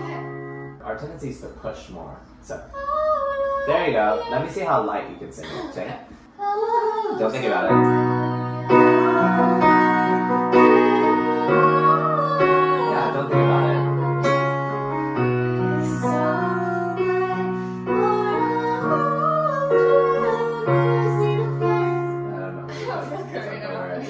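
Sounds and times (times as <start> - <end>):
keyboard piano chords: 0.0 - 1.2, 7.2 - 24.0
young woman singing: 2.8 - 4.7, 6.4 - 14.5, 15.2 - 23.7.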